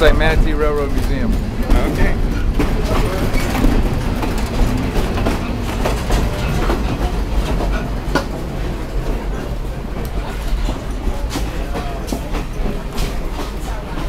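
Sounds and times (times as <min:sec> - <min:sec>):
train wheels rumbling on track: 0:00.0 - 0:14.0
clicks and rattles: 0:00.2 - 0:08.4.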